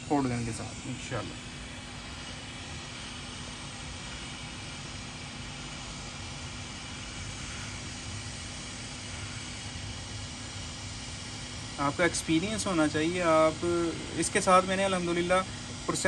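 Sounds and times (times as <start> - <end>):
hot air gun hissing: 0.0 - 16.0.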